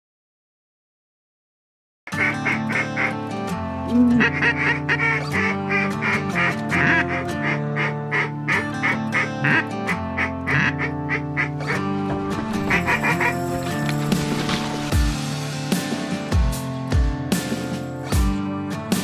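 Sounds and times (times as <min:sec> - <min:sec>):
ducks quacking: 0:02.1 - 0:03.2, 0:04.0 - 0:14.3
background music: 0:02.1 - 0:19.0.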